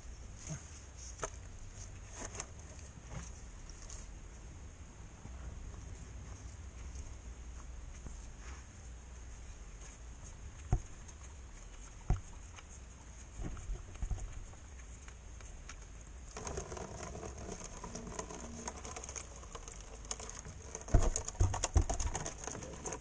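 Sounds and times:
liquid pattering into plastic canister: 0:16.3 - 0:23.0
knocks on plastic: 0:20.9 - 0:22.3.

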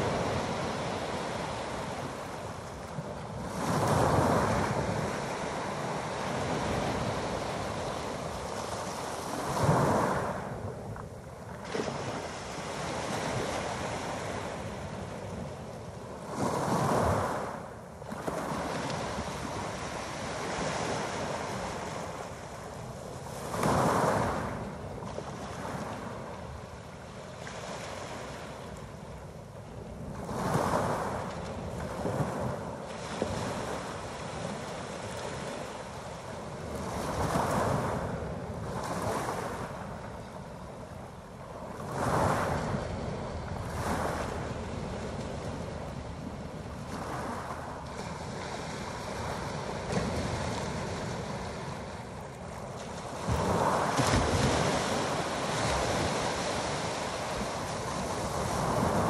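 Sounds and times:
waves washing up pebble beach: 0:30.2 - 0:39.9, 0:41.5 - 0:52.1, 0:52.8 - 0:59.0
surf hiss: 0:39.7 - 0:59.0.

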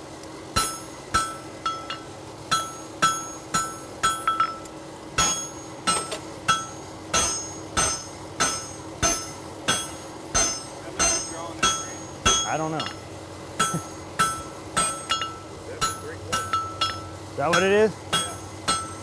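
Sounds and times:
hammer blows on anvil: 0:05.2 - 0:13.0, 0:13.6 - 0:19.0.

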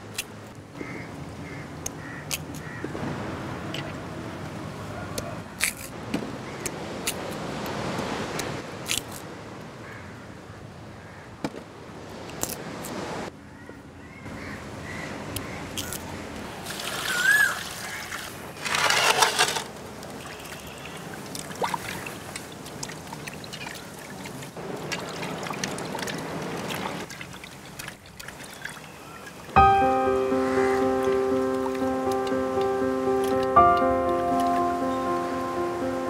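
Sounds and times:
water splashes: 0:16.5 - 0:18.8, 0:19.8 - 0:29.6
water sloshing in basin: 0:21.3 - 0:28.9.

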